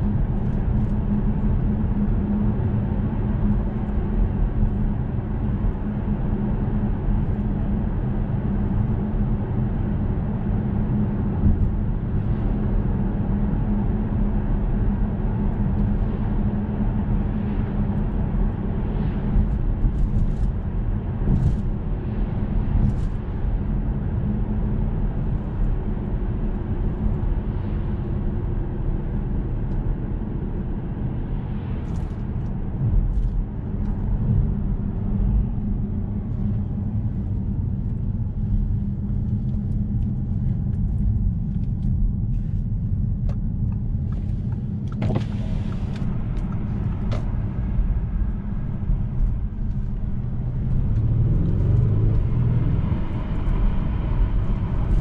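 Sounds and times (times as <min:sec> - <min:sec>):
tyre and road noise: 0:31.4 - 0:55.0
car engine cruising: 0:31.9 - 0:55.0.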